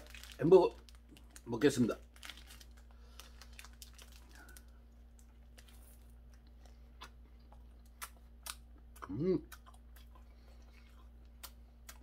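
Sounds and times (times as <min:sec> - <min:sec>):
paper wrapper crinkling: 0:00.0 - 0:06.2.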